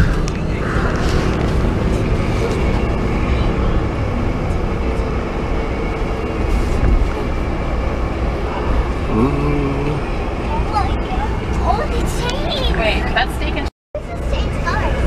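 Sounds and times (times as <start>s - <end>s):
road and engine rumble: 0.0s - 15.0s.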